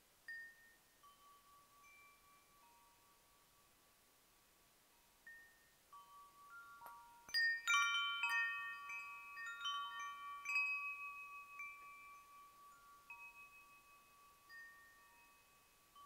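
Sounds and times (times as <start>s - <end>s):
chimes ringing: 5.3s - 16.0s.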